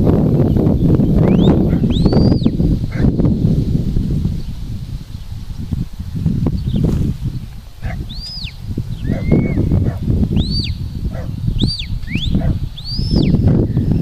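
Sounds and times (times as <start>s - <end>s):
wind rumble on microphone: 0.0s - 14.0s
short whistled notes: 1.2s - 2.6s.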